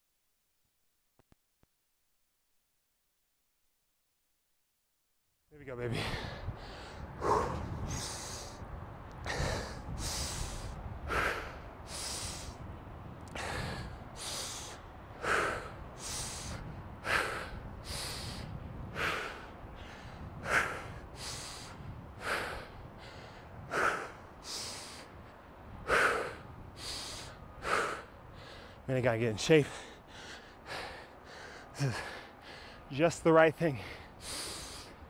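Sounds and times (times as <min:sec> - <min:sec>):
man breathing hard through nose: 0:05.9 - 0:28.9, 0:29.6 - 0:32.9, 0:33.7 - 0:35.0.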